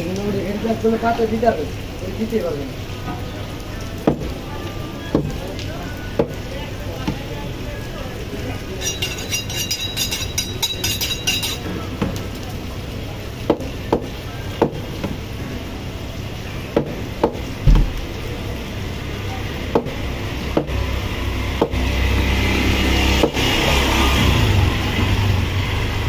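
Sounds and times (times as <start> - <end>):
cleaver chopping meat on wood: 13.5 - 15.2, 19.7 - 20.0, 21.6 - 21.8.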